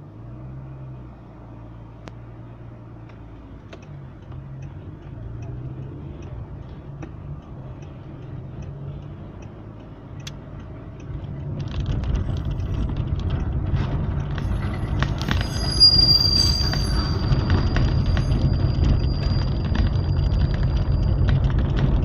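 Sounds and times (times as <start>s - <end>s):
tyres rumbling on cobblestones: 10.8s - 22.0s
high steady squeal: 14.4s - 22.0s.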